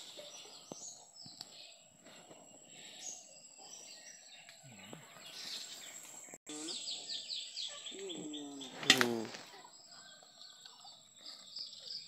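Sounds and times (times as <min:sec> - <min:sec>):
birds chirping: 0:00.0 - 0:12.0
faint outdoor ambience: 0:00.0 - 0:12.0.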